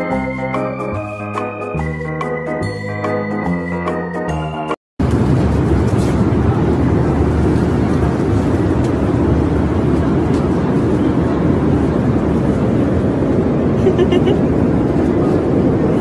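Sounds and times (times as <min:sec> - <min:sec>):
airliner cabin drone: 0:05.0 - 0:16.0.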